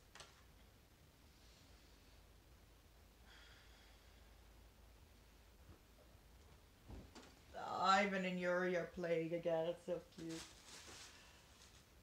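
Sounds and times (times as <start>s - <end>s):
soft rustle: 9.9s - 12.0s.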